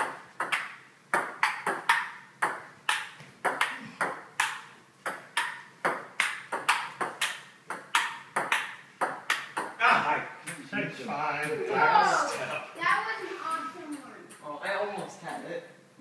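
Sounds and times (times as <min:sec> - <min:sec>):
table tennis ball clicking: 0:00.4 - 0:09.8.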